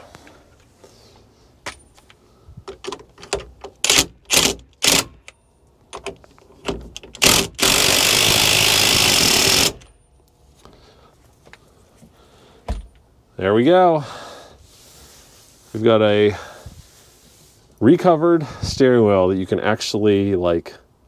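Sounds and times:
knocks and clicks of parts: 1.6 - 7.9
cordless driver running: 7.2 - 9.8.

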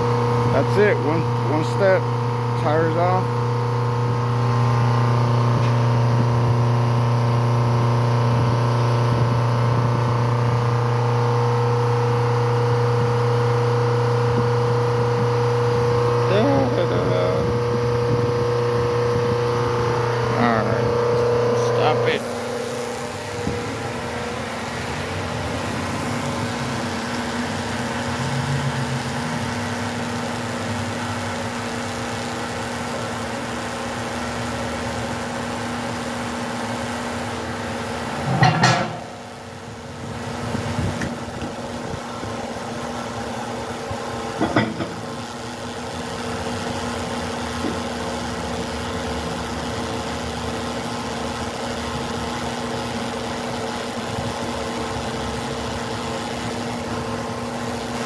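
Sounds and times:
electric motor and pump hum: 0.0 - 58.0
loud metal clank: 38.2 - 39.5.

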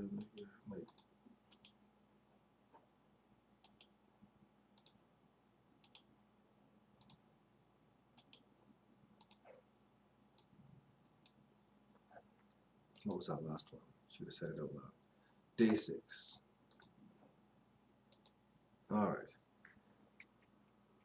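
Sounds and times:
computer mouse clicking: 0.2 - 1.8, 3.6 - 3.9, 4.8 - 5.0, 5.8 - 6.1, 7.0 - 7.2, 8.2 - 8.4, 9.2 - 9.5, 10.3 - 11.4, 16.7 - 17.0, 18.1 - 18.4.

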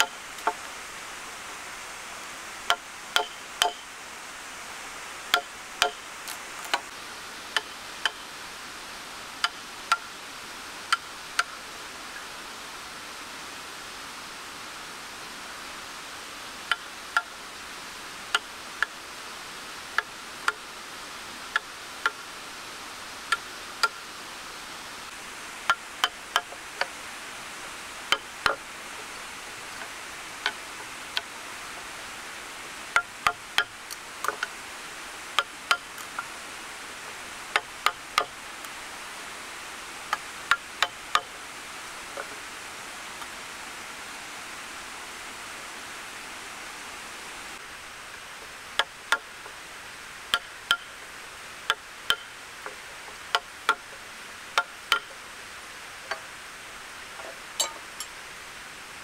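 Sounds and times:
steady hiss: 0.0 - 59.0
mallet striking chisel: 2.7 - 3.8, 5.3 - 6.0, 7.6 - 8.2, 25.7 - 26.5, 50.3 - 50.9, 51.7 - 52.3, 54.6 - 55.1.

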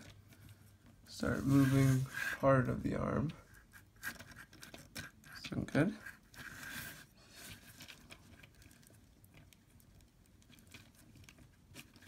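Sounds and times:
plastic parts clicking and rustling: 4.0 - 6.5.

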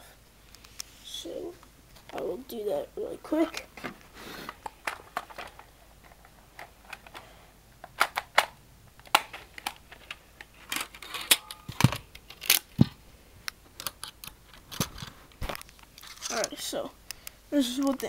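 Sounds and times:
plastic clicks and snaps: 7.8 - 12.9.

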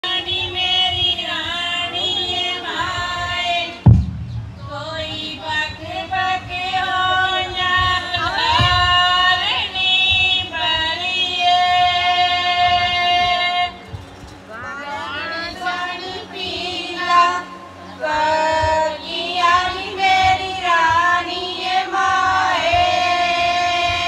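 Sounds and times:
women singing folk song: 0.0 - 3.9, 4.6 - 24.0
loud low thump: 3.8 - 5.8.

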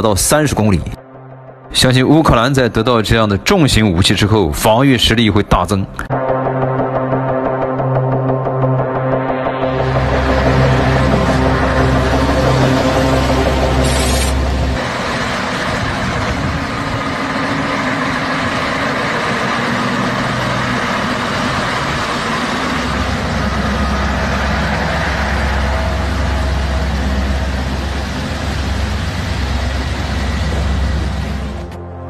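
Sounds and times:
diesel truck engines running: 9.8 - 31.9.

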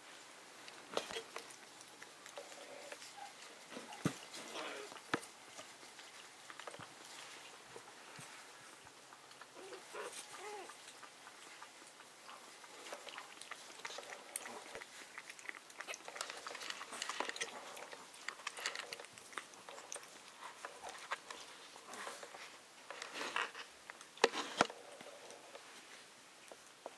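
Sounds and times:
puppy lapping water from bowl: 10.6 - 21.8.

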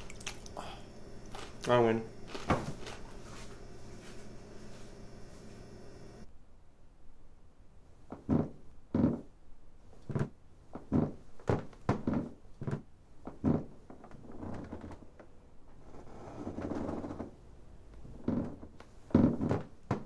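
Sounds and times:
soft shuffling: 1.1 - 6.2
footsteps thudding on indoor floor: 2.3 - 5.0.

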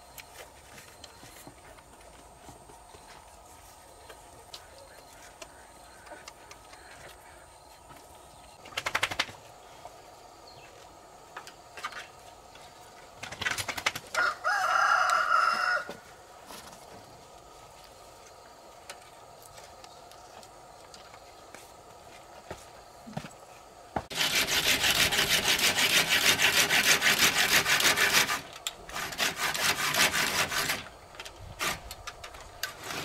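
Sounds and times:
rooster flapping wings: 8.6 - 9.5, 13.2 - 14.4
rooster crowing: 14.1 - 16.1.

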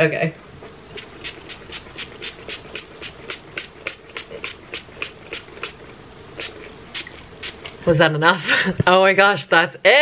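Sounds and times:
pump spray bottle spritzing: 1.0 - 5.8, 6.4 - 7.8.

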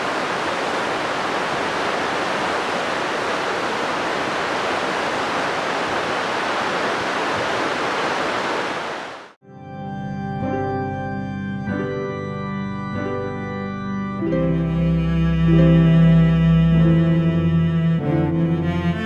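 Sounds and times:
water rushing: 0.0 - 9.4
organ music: 9.4 - 19.0.

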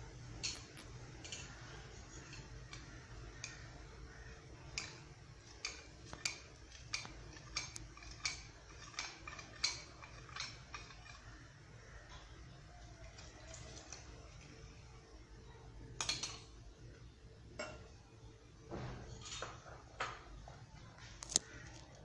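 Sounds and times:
whisk clicking against saucepan: 2.2 - 11.4.

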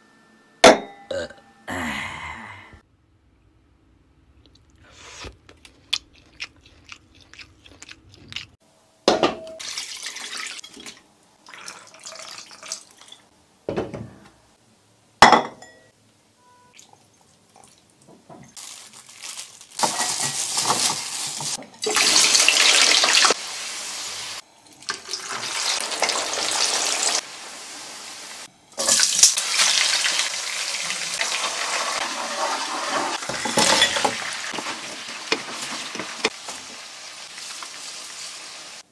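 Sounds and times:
chillies sizzling in hot oil: 18.5 - 38.9.

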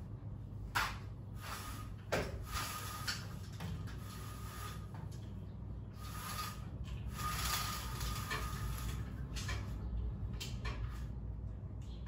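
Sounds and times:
window blind slats and cord rustling: 0.8 - 5.3, 6.0 - 9.8.

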